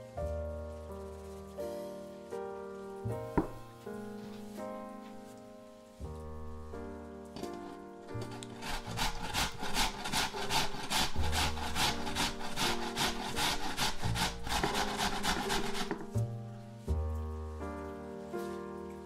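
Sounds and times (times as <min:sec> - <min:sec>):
potato grating on metal grater: 0:08.2 - 0:16.2.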